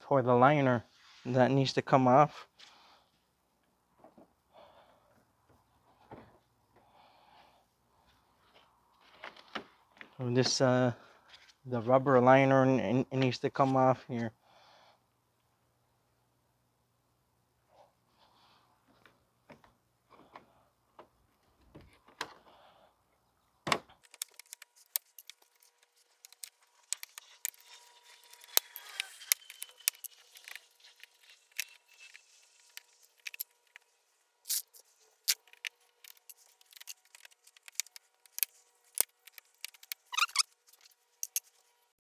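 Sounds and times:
plastic clips clicking and snapping: 0:24.0 - 0:25.5, 0:35.3 - 0:40.4.

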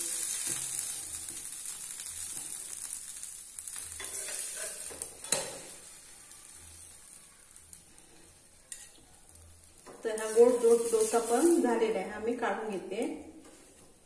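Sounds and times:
dosa sizzling in oil: 0:00.0 - 0:14.0
steel spatula scraping pan: 0:03.9 - 0:05.7, 0:10.2 - 0:11.7.

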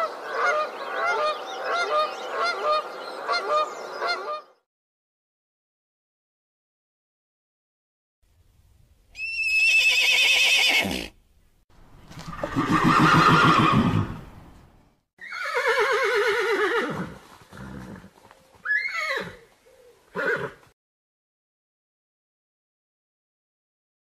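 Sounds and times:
horses neighing: 0:09.2 - 0:11.2, 0:12.2 - 0:14.2, 0:15.2 - 0:19.5, 0:20.1 - 0:20.6.

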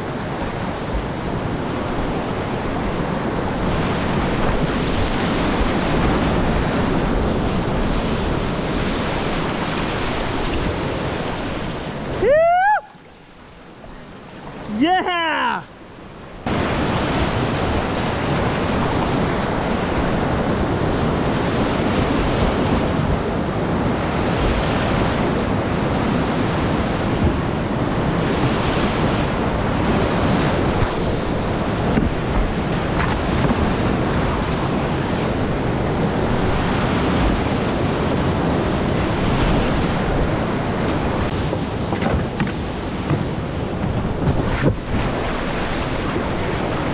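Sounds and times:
whitewater rapids rushing: 0:14.5 - 0:15.8, 0:24.1 - 0:46.9.

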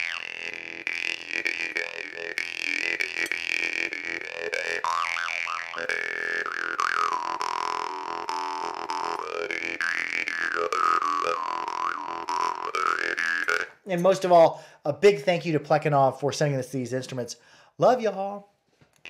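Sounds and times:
jaw harp playing: 0:00.0 - 0:14.4.

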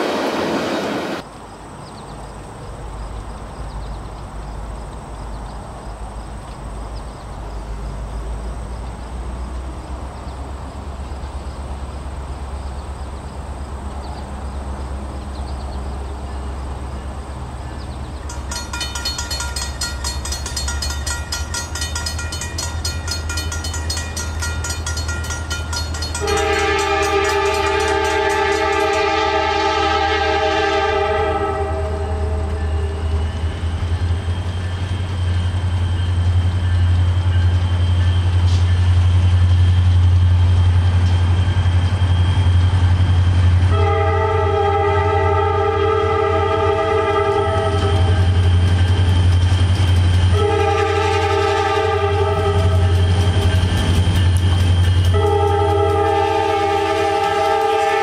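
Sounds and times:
diesel locomotive rumbling: 0:00.0 - 0:58.0
locomotive bell ringing: 0:18.2 - 0:29.2
air horn blast: 0:26.2 - 0:33.2, 0:43.7 - 0:48.3, 0:50.3 - 0:53.0, 0:55.1 - 0:58.0.

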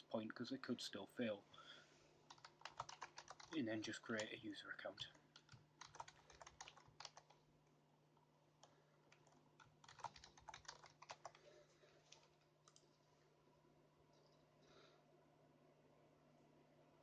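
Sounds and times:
faint keyboard typing: 0:02.2 - 0:13.1, 0:14.1 - 0:14.5.

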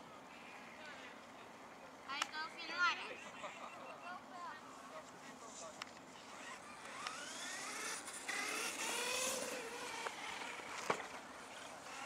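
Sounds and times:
toy car motor whining: 0:06.2 - 0:12.0.

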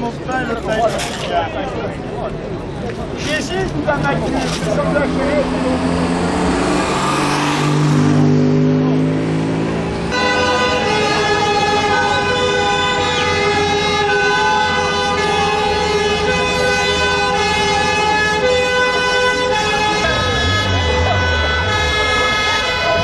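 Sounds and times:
crowd noise: 0:00.0 - 0:23.0
low drawn-out horn tones: 0:10.1 - 0:23.0
vehicle horns blaring together: 0:10.1 - 0:23.0.

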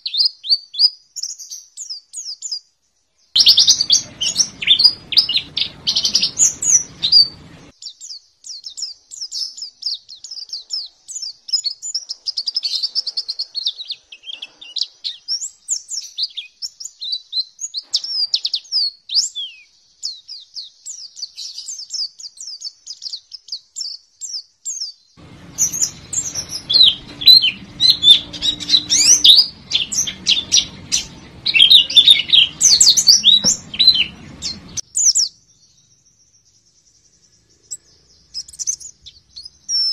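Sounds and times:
bird twittering chirps and trills: 0:03.2 - 0:39.9
faint low background hum: 0:03.4 - 0:07.7, 0:25.2 - 0:34.8.

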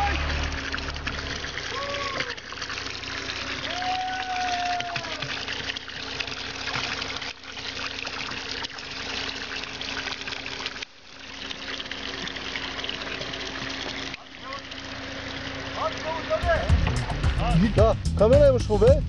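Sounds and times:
water pouring into stone trough: 0:00.0 - 0:17.9.

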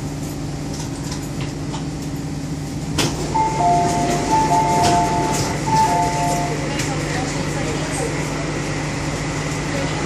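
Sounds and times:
train humming at platform: 0:00.0 - 0:10.0
train doors clunking open: 0:02.9 - 0:07.9
two-tone door chime: 0:03.3 - 0:06.7.

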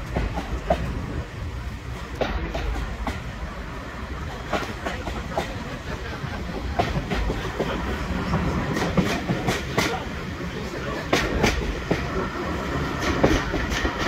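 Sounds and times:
diesel train low rumble: 0:00.0 - 0:14.0
wheels clicking over rail joints: 0:01.8 - 0:03.6, 0:04.2 - 0:14.0.

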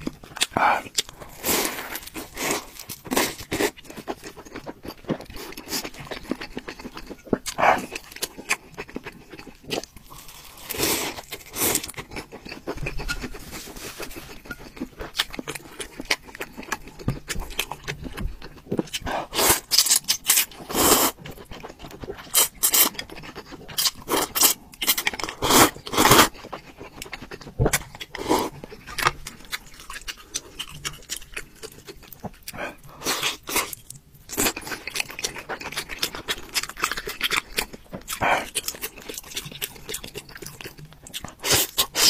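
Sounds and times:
chewing: 0:00.0 - 0:42.0
slurping noodles: 0:10.1 - 0:11.9, 0:19.1 - 0:19.8, 0:20.6 - 0:21.2, 0:25.3 - 0:26.3.

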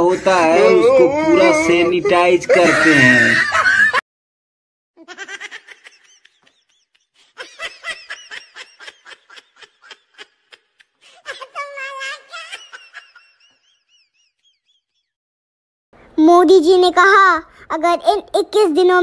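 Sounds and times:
high-pitched giggling laughter: 0:01.2 - 0:04.0, 0:05.0 - 0:14.0.

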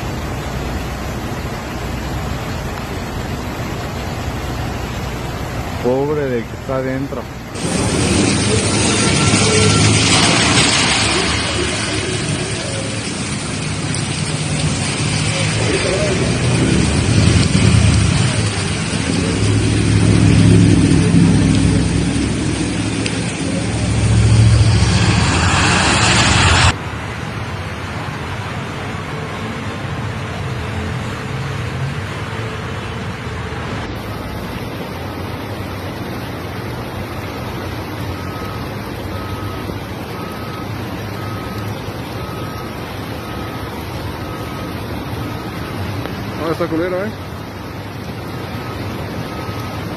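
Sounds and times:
water washing: 0:00.0 - 0:26.8, 0:33.6 - 0:49.9
car engine hum: 0:00.0 - 0:29.0
rain and floodwater rushing: 0:00.0 - 0:49.9.

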